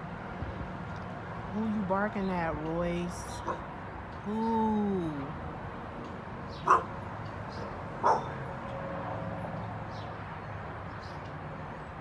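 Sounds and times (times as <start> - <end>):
dog barking: 3.4 - 3.7, 6.6 - 6.9, 8.0 - 8.4.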